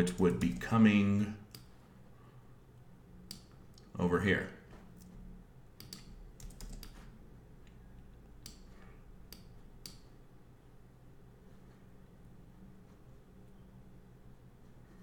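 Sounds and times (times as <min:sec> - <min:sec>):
low steady hum: 0:00.0 - 0:15.0
computer mouse clicks: 0:01.5 - 0:01.7, 0:03.3 - 0:03.9, 0:05.8 - 0:10.1.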